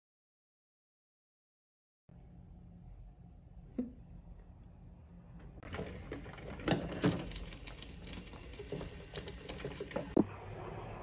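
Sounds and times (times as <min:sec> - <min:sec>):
faint room hum: 0:02.1 - 0:11.0
coffee maker hissing and gurgling: 0:05.6 - 0:11.0.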